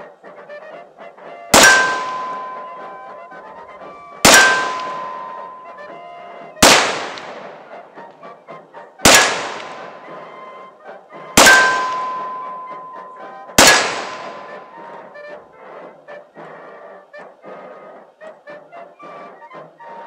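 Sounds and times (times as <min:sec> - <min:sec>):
revolver gunshots: 0:01.6 - 0:02.8, 0:04.2 - 0:05.6, 0:06.6 - 0:07.6, 0:09.0 - 0:10.0, 0:11.4 - 0:14.6.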